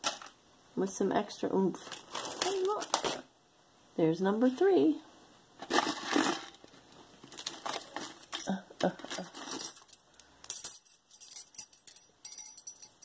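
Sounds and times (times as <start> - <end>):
metal bracelets clinking: 7.3 - 13.0.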